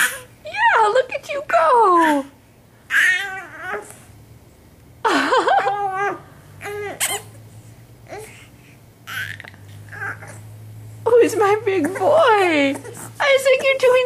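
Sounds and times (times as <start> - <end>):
baby squealing: 2.9 - 3.9, 9.1 - 10.4.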